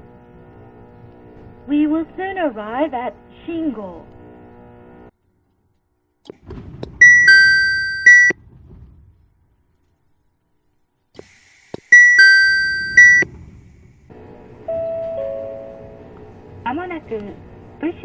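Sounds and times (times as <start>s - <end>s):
soft low two-note chime: 7.0s - 8.3s
train door chime: 7.0s - 8.4s, 12.0s - 13.3s, 14.7s - 16.1s.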